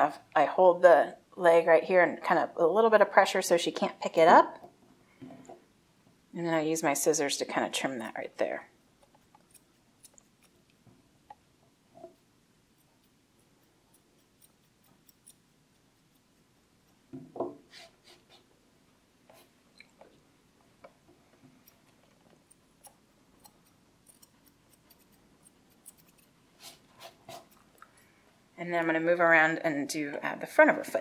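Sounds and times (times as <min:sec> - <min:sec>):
scissors snipping hair: 0:09.0 - 0:10.7, 0:12.8 - 0:16.3, 0:22.5 - 0:26.4.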